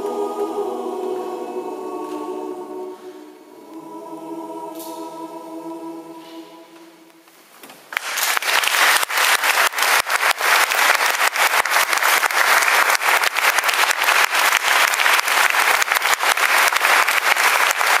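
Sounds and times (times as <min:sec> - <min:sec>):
audience applause: 0:07.9 - 0:18.0.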